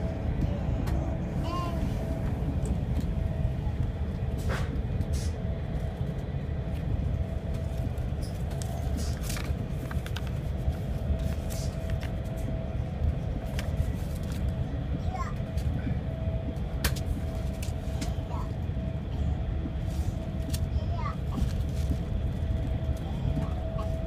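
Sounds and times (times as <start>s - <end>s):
train rumble inside carriage: 0.0s - 24.0s
paper rustling and clicks: 8.5s - 10.4s.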